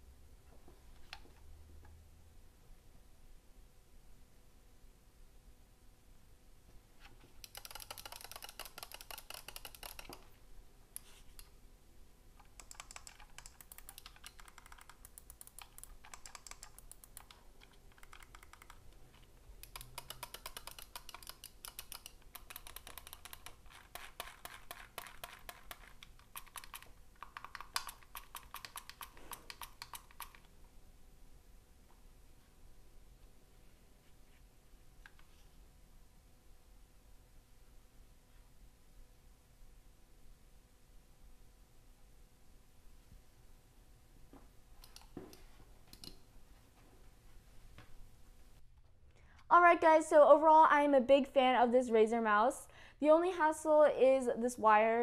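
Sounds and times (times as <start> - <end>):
mouse buttons clicking: 7.4 - 10.3, 12.4 - 30.5, 44.8 - 46.2.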